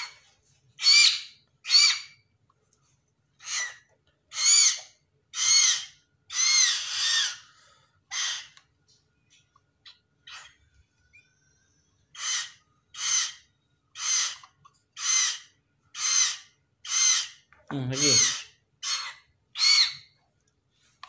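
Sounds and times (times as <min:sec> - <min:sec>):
bird chick begging squawks: 0:03.4 - 0:07.5, 0:08.1 - 0:08.6, 0:12.1 - 0:17.4, 0:18.0 - 0:20.1.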